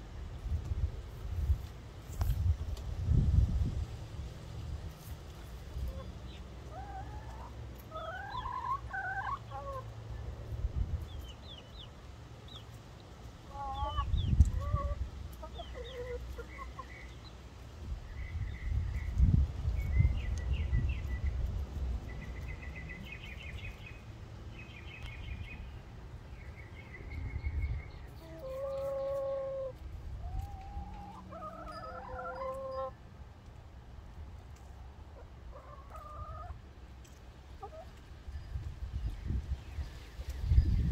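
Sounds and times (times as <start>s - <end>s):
hens clucking and calling: 5.3s - 10.1s, 13.4s - 17.4s, 27.9s - 33.0s, 34.6s - 38.1s.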